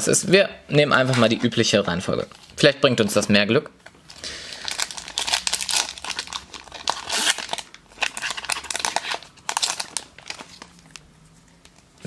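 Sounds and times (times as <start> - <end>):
foil wrapper crinkling and tearing: 4.1 - 11.0.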